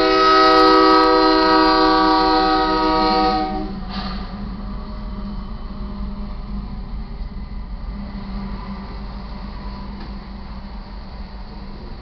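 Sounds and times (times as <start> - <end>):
locomotive air horn blast: 0.0 - 4.3
train rumbling past: 0.0 - 12.0.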